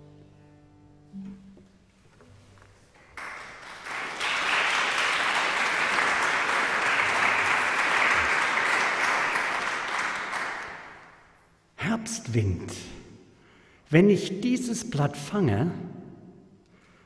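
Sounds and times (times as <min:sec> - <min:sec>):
audience applause: 0:03.1 - 0:11.2.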